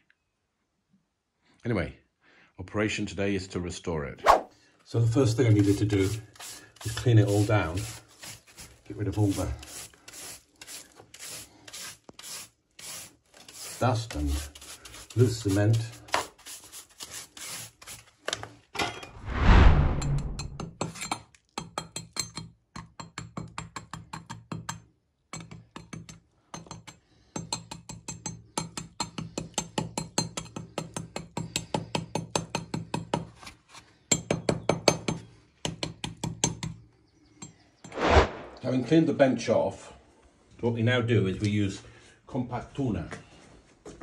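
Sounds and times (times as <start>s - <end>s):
hand tool chipping at stone: 5.4s - 18.0s, 20.6s - 33.3s.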